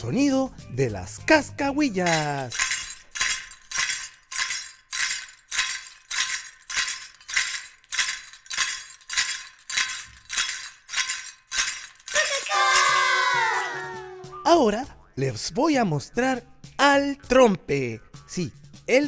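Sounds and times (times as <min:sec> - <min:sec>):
small metal bells jingling: 0:01.9 - 0:14.1.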